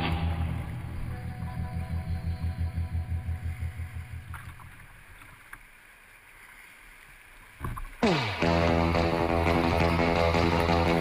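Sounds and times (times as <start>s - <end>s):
river water rushing and splashing: 0.0s - 11.0s
rhythmic background music: 8.0s - 11.0s.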